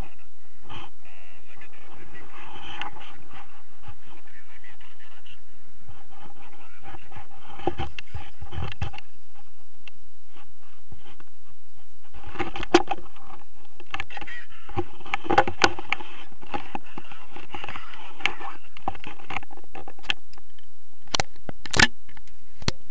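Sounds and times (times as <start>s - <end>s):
harness and lines rustling: 1.5s - 20.7s
sharp buckle clicks: 21.1s - 22.8s.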